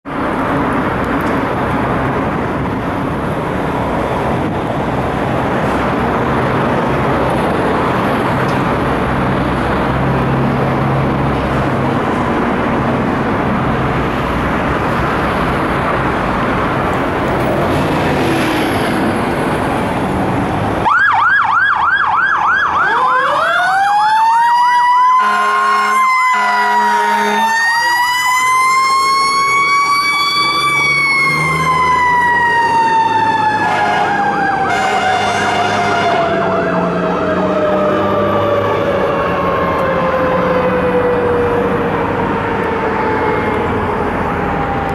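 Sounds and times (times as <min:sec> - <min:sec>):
street noise: 0:00.0 - 0:44.9
electronic siren yelp: 0:20.8 - 0:44.9
mechanical siren wail: 0:20.8 - 0:44.9
air horn blasts: 0:25.2 - 0:27.7, 0:33.6 - 0:36.4.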